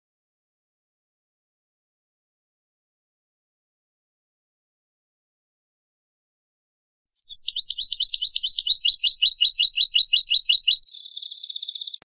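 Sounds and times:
bird buzzy trill: 7.2 - 12.0
goldfinch singing: 7.2 - 12.0.

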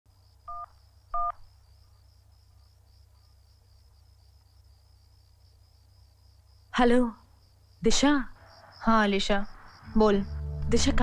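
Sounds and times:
crickets chirping: 0.1 - 11.0
phone keypad dialing beeps: 0.5 - 1.4.

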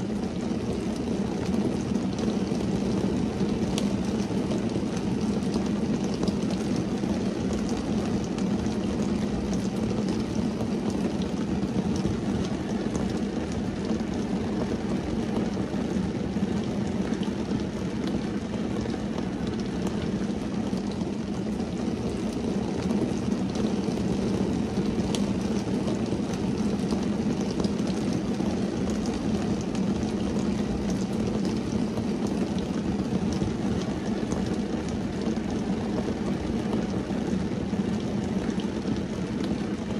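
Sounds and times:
rain on a car: 0.0 - 39.9
raindrop ticks: 0.7 - 2.6.

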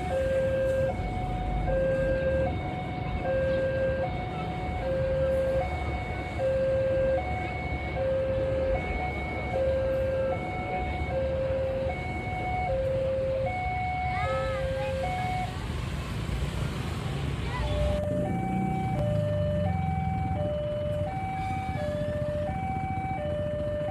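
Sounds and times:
level crossing two-tone alarm: 0.0 - 15.5.

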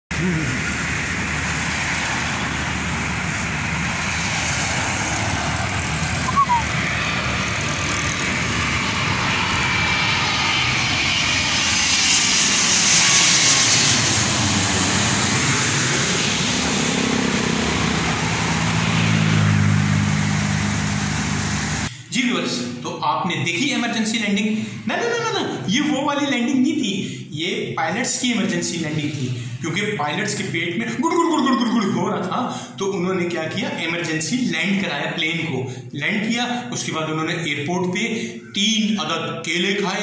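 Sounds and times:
vehicle engine humming: 0.1 - 11.0, 13.9 - 21.9
road traffic: 0.1 - 22.1
jet airliner passing overhead: 0.1 - 22.8, 23.7 - 40.0
short high chirp: 6.3 - 6.7.

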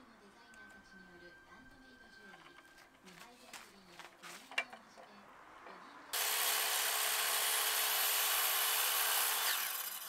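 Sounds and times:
circular saw cutting wood: 6.1 - 10.0.

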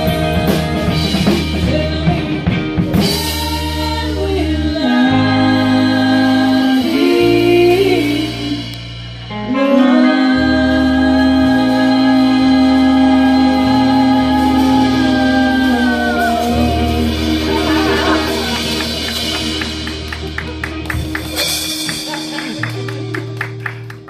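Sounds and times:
women singing: 0.0 - 8.7, 9.5 - 19.6
live band playing: 0.0 - 24.0
drum hits: 17.0 - 23.1.

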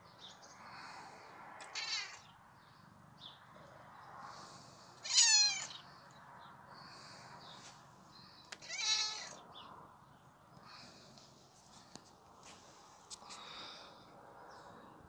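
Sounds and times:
cat meowing: 1.6 - 2.2, 5.0 - 5.8, 8.6 - 9.4.

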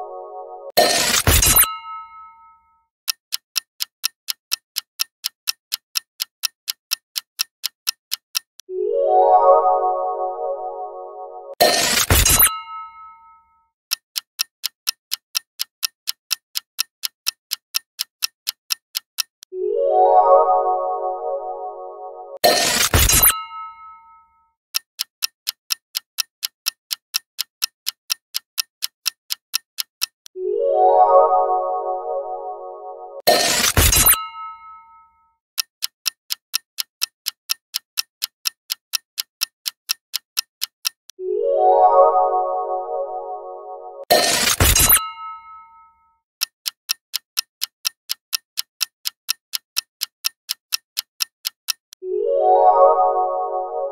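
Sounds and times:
synthesizer music tone: 0.0 - 0.8, 8.7 - 11.6, 19.6 - 22.4, 30.4 - 33.2, 41.2 - 44.1, 52.0 - 53.9
clock ticking: 0.7 - 2.4, 3.1 - 9.9, 11.5 - 13.2, 13.9 - 19.5, 20.4 - 24.1, 24.7 - 30.4, 32.5 - 34.9, 35.6 - 41.2, 44.0 - 45.7, 46.4 - 52.0
rising chime-like notes: 52.1 - 53.9.

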